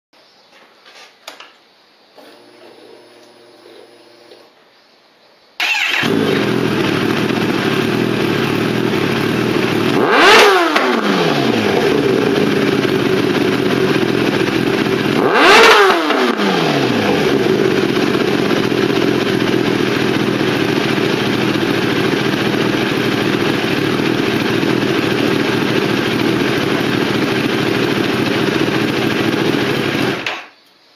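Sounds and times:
motorcycle engine idling and revving: 0:05.6 - 0:30.4.

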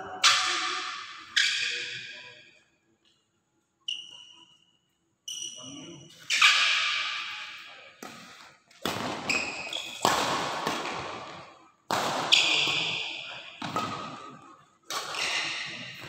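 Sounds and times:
shoes squeaking on court floor: 0:03.8 - 0:11.4, 0:12.2 - 0:16.0
racket striking shuttlecock: 0:06.2 - 0:16.0.

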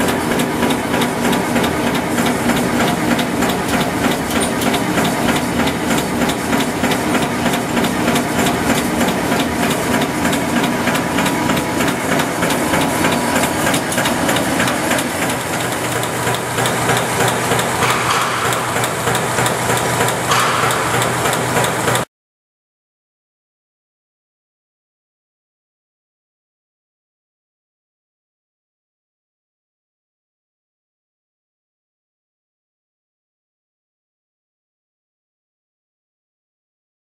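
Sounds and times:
machine clattering: 0:00.0 - 0:22.1
steady machine hum: 0:00.0 - 0:22.1.

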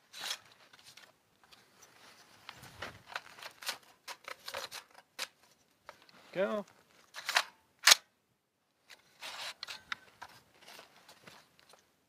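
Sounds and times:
rifle action metallic clicks: 0:07.2 - 0:08.1.

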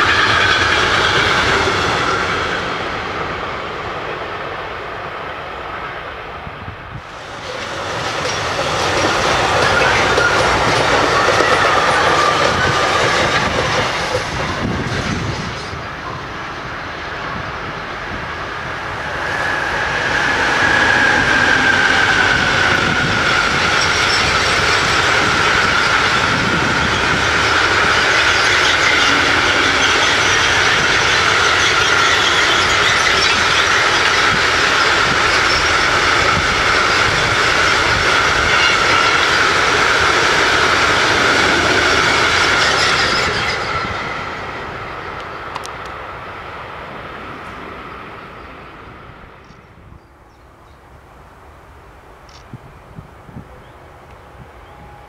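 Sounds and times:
high rail squeal: 0:00.0 - 0:04.3, 0:07.0 - 0:46.4, 0:52.7 - 0:55.0
train wheels rumbling on rails: 0:00.0 - 0:50.0.

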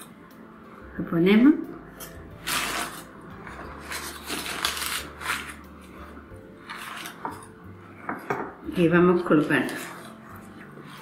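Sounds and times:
baking paper crinkling: 0:02.4 - 0:06.0.

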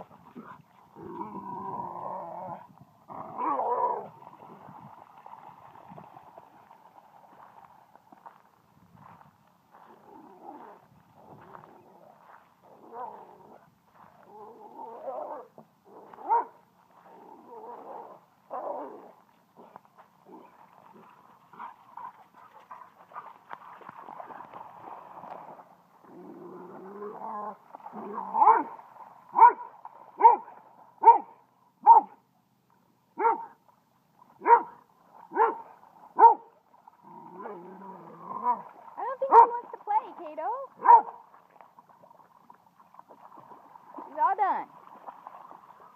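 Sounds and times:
dog sharp barks: 0:31.0 - 0:32.2, 0:33.2 - 0:33.5, 0:34.4 - 0:34.7, 0:35.4 - 0:35.6, 0:36.2 - 0:36.5, 0:40.8 - 0:41.2.

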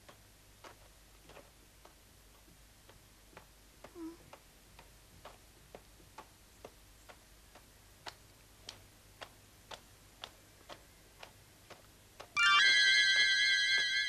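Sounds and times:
clock-like ticking: 0:00.0 - 0:14.0.

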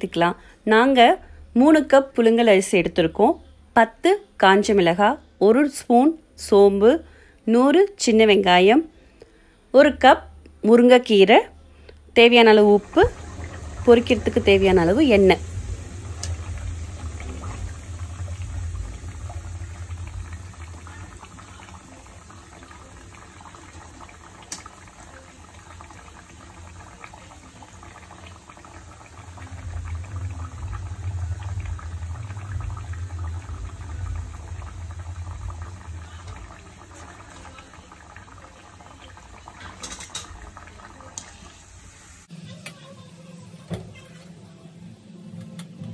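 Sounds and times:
food deep-frying in oil: 0:12.4 - 0:45.9
low rumble: 0:12.8 - 0:23.1, 0:27.7 - 0:38.6.

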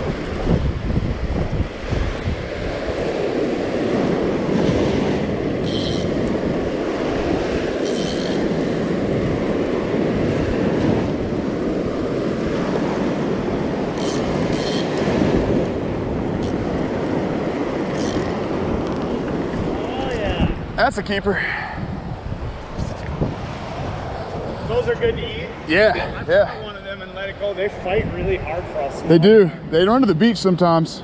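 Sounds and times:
surf washing up beach: 0:00.0 - 0:31.0
wind buffeting microphone: 0:00.0 - 0:31.0
high squeaks: 0:05.6 - 0:06.2, 0:07.8 - 0:08.6, 0:14.0 - 0:15.0, 0:17.9 - 0:18.4
fishing reel cranking: 0:05.6 - 0:06.4, 0:07.7 - 0:08.6, 0:13.9 - 0:15.1, 0:17.8 - 0:19.0.

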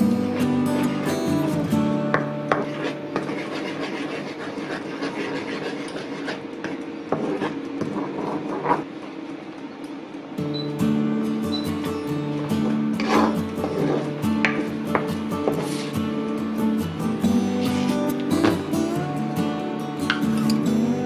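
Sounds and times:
background music: 0:00.0 - 0:03.1, 0:10.8 - 0:21.0
wooden spatula scraping wok: 0:02.4 - 0:08.9, 0:12.6 - 0:16.0.

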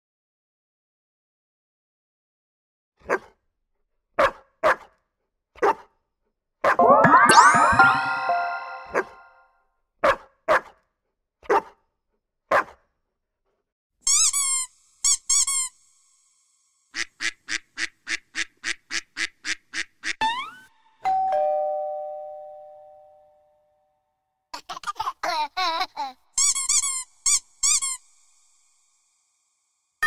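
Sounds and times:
dog barks: 0:03.0 - 0:03.4, 0:04.2 - 0:05.0, 0:05.6 - 0:05.9, 0:10.0 - 0:10.8, 0:11.4 - 0:11.8, 0:12.5 - 0:12.8
two-tone doorbell chime: 0:21.0 - 0:23.5.

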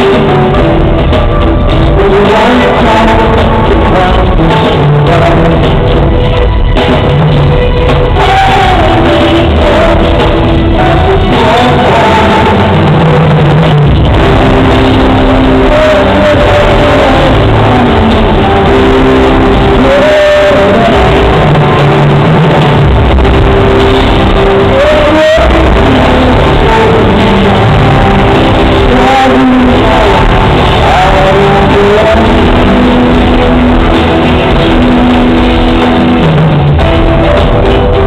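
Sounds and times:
loud live rock band: 0:00.0 - 0:38.0.

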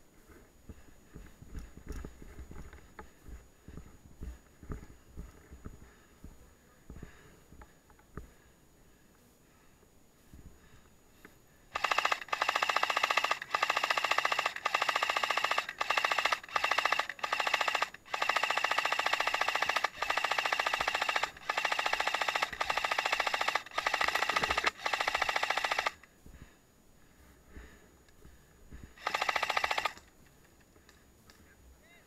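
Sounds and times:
steady whine: 0:00.0 - 0:31.8
airsoft rifle firing bursts: 0:11.8 - 0:26.1, 0:29.0 - 0:30.1.

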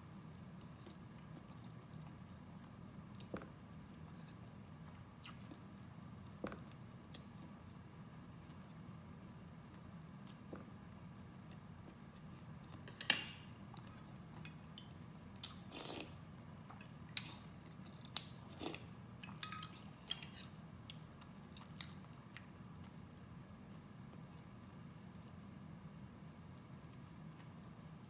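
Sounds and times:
person chewing: 0:13.7 - 0:18.8.

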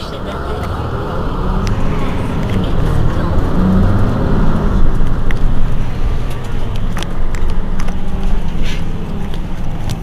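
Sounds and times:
bus diesel engine idling: 0:00.0 - 0:10.0.

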